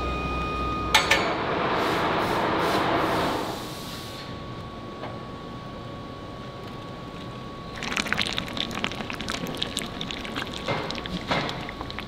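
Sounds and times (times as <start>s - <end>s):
molten metal crackling and spitting: 7.7s - 12.0s.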